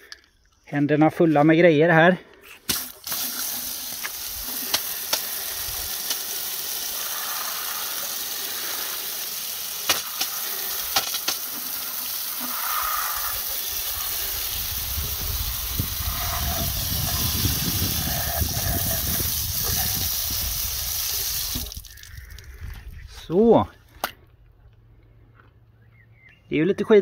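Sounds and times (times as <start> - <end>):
hose spray hissing on wheel: 2.6 - 22.1.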